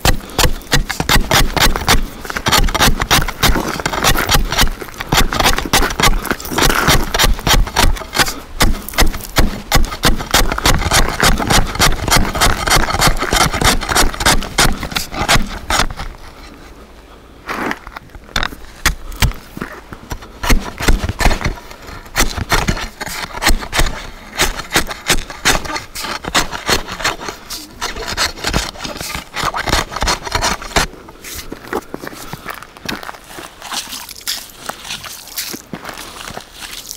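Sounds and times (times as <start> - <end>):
ice chisel chopping ice: 0.0 - 16.0, 20.4 - 30.9.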